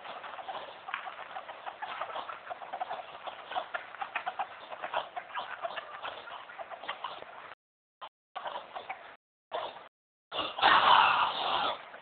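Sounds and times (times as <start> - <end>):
chickens tapping and clucking: 0.0 - 7.5.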